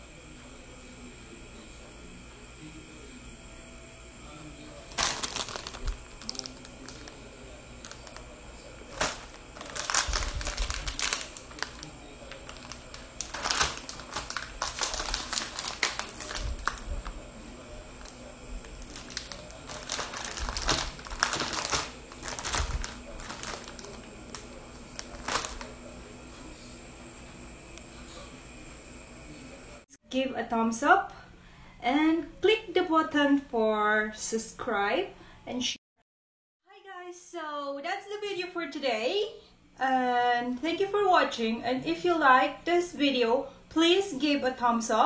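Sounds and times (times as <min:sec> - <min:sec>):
plastic packets crinkling: 0:04.9 - 0:26.0.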